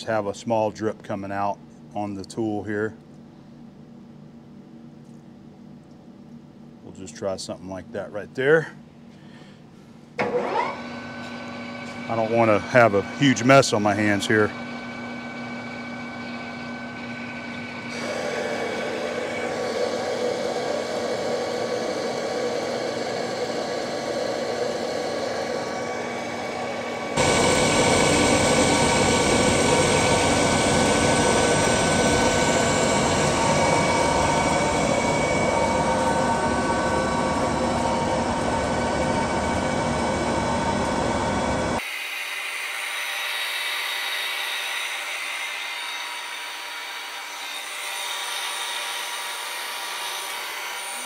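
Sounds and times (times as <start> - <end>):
metal lathe gear whine: 10.2 - 51.0.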